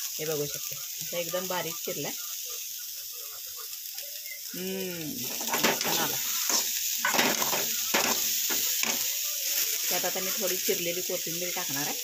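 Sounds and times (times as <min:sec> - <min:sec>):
vegetables sizzling in a pan: 0:00.0 - 0:12.0
metal spatula scraping a pan: 0:05.2 - 0:10.8.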